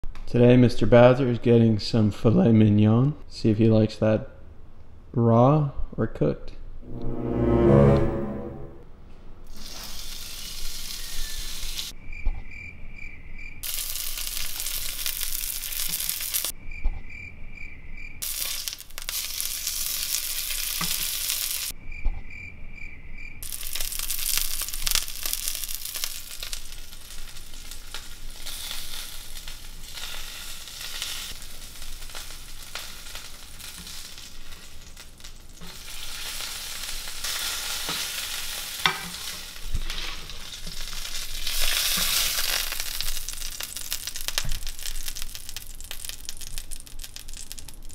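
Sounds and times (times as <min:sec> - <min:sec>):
meat sizzling in a frying pan: 0:09.5 - 0:12.0, 0:13.6 - 0:16.5, 0:18.2 - 0:21.7, 0:23.4 - 0:47.9.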